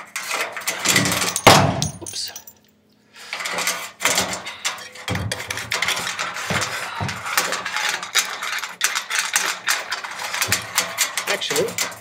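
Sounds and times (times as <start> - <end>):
metal knocks and scrapes: 3.4 - 12.0.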